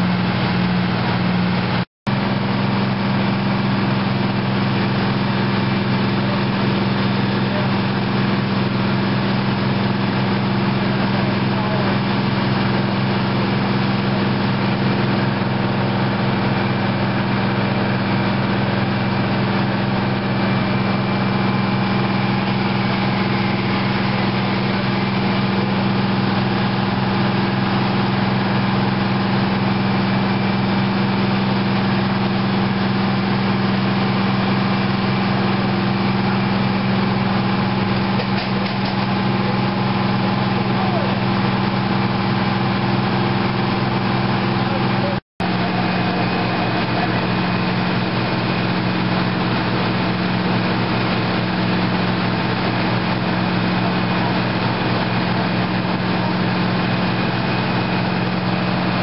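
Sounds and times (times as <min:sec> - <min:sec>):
diesel engine droning: 0:00.0 - 0:59.0.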